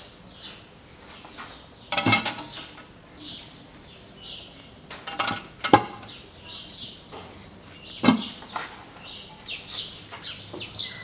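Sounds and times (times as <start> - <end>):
birds chirping faintly: 0.0 - 11.0
metal cover and bolts clinking: 1.9 - 2.8, 4.9 - 6.1.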